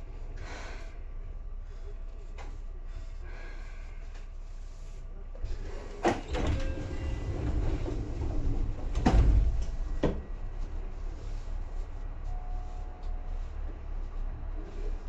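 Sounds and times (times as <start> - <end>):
electric train low rumble: 0.0 - 15.0.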